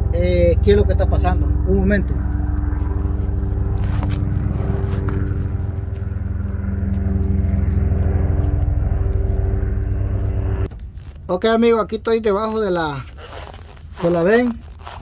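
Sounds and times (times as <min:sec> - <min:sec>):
engine idling hum: 0:00.0 - 0:11.4.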